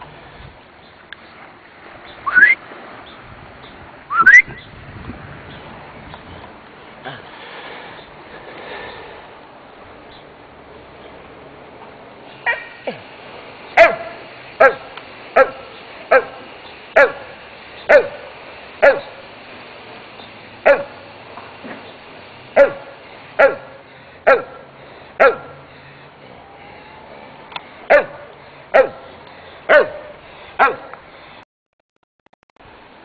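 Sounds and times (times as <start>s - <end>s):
dog barking: 12.4s - 12.8s, 13.8s - 16.4s, 17.0s - 17.3s, 17.9s - 19.2s, 20.6s - 21.0s, 22.6s - 24.6s, 25.2s - 25.6s, 27.9s - 29.1s, 29.7s - 31.0s.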